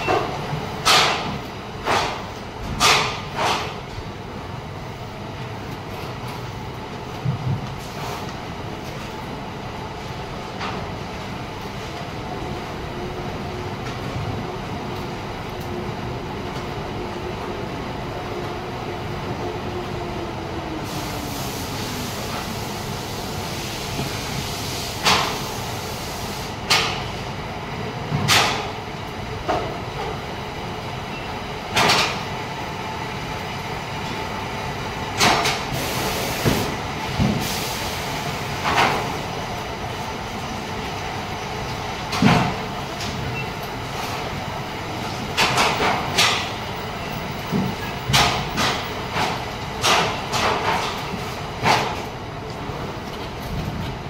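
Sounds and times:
factory machine noise: 0.0s - 54.0s.

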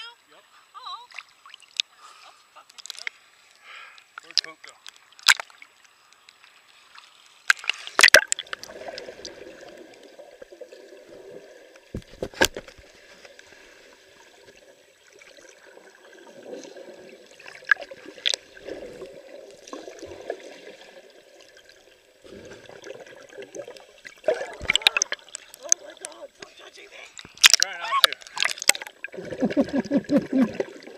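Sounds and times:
water splashing: 6.7s - 30.9s
muffled underwater gurgling: 24.2s - 26.6s, 27.7s - 30.9s.

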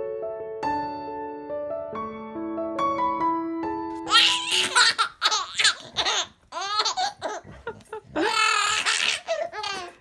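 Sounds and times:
baby laughing: 4.0s - 10.0s.

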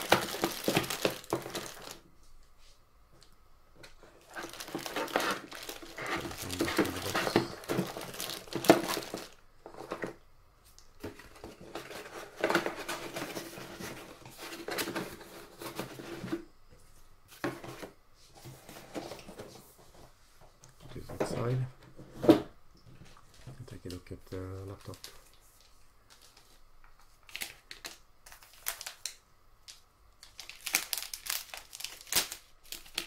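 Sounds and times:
plastic packaging crinkling: 0.0s - 2.0s, 4.1s - 10.1s, 24.6s - 33.0s
handling sounds: 3.9s - 10.1s.

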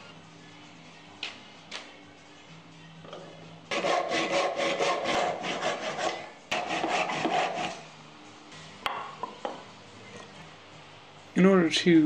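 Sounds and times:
handsaw cutting wood: 3.7s - 7.8s.

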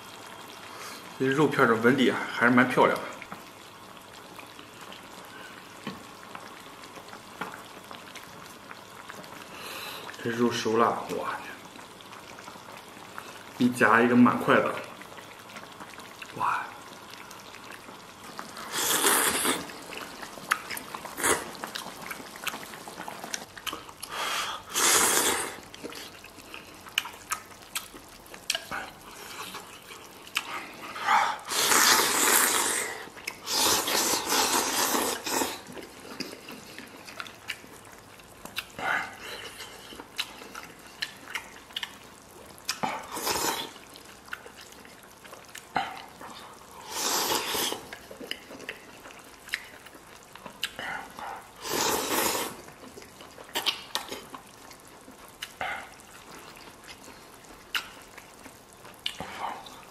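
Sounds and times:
wet slurping: 16.0s - 37.8s, 42.7s - 59.9s.

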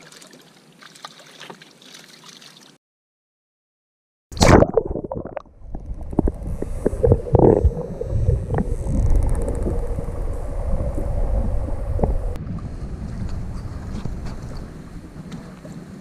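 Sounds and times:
underwater rumble and sloshing: 4.7s - 16.0s.

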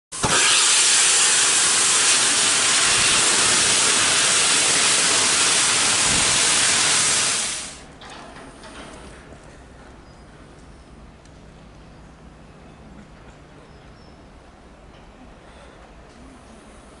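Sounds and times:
steam locomotive hissing steam: 0.1s - 7.9s.

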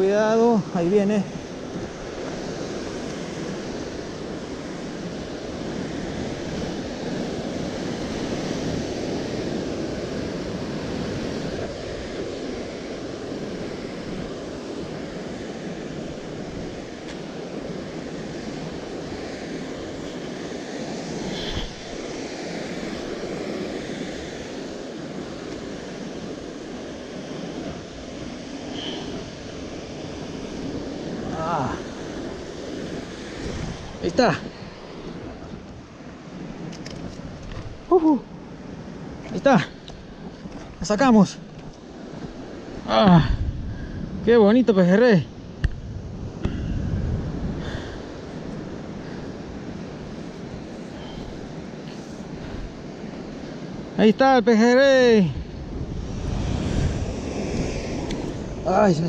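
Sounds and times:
wind on microphone: 0.0s - 54.0s, 55.1s - 59.0s
ocean surf breaking on rocks: 0.0s - 59.0s.

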